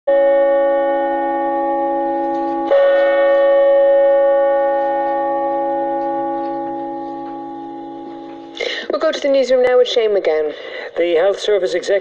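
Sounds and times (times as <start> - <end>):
bell-like chime ringing: 0.1 - 8.7.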